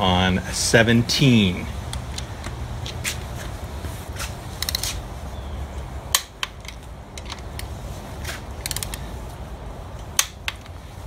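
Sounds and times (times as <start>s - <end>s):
torque wrench ratchet clicking: 8.6s - 9.0s.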